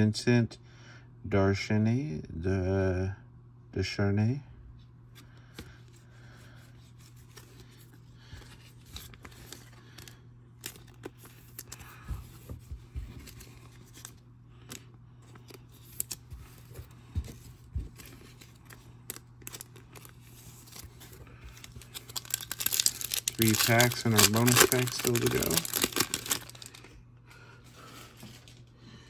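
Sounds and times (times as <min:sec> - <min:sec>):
card slipped into plastic sleeve: 0:18.7 - 0:26.8.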